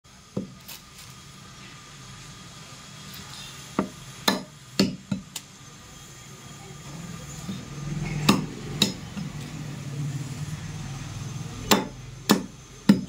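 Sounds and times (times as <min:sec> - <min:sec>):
cleaver chopping bone and meat: 0:03.8 - 0:05.4, 0:08.1 - 0:09.0, 0:11.7 - 0:13.0.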